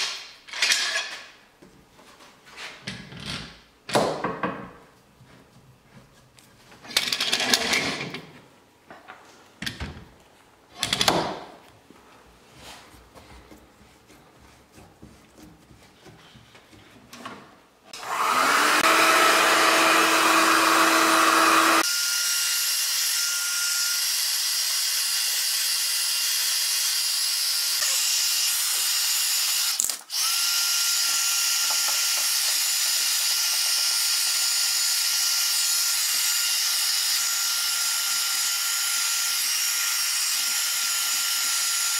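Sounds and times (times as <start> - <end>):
heat gun blowing with fan whine: 18.0 - 41.9.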